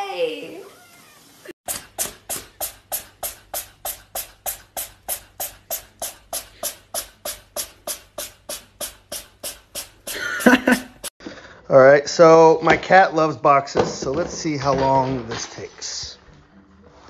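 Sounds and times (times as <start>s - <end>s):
percussive beat of sharp clicks: 1.7s - 11.1s.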